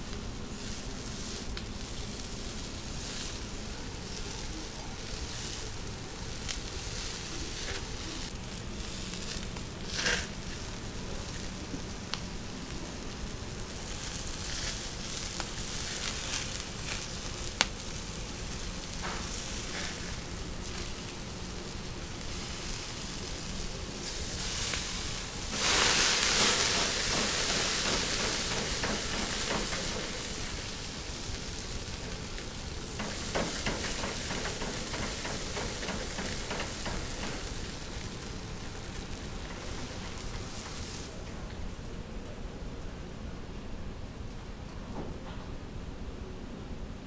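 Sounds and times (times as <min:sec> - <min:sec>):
skewers sizzling: 0:00.0 - 0:42.0.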